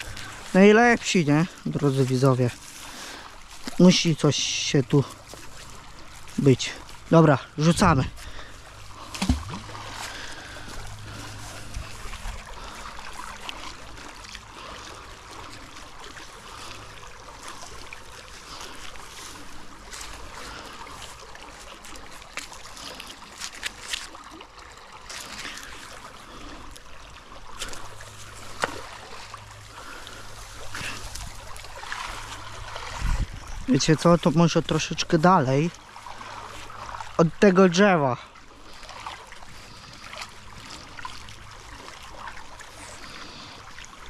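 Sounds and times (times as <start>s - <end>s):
river water flowing: 0.0s - 44.0s
rope rustling through grass: 5.1s - 14.2s, 14.8s - 24.3s, 26.8s - 35.2s.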